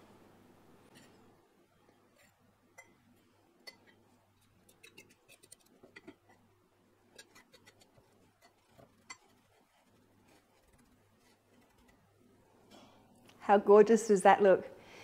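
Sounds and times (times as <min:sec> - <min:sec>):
fork tapping ceramic bowls: 0:02.8 - 0:03.0, 0:03.6 - 0:04.0.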